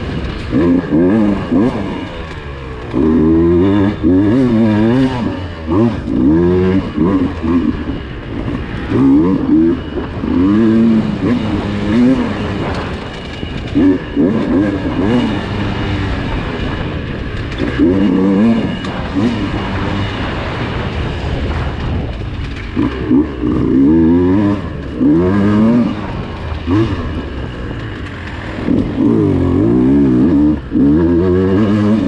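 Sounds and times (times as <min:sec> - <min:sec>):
dirt bike engine revving: 0:00.0 - 0:32.0
knocks and clatter: 0:10.0 - 0:29.3.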